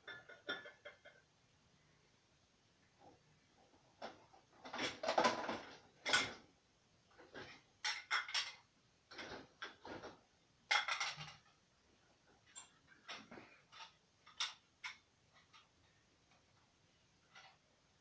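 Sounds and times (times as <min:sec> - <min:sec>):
dishes and cutlery clinking: 0:00.0 - 0:01.2, 0:07.3 - 0:10.1, 0:10.7 - 0:11.6.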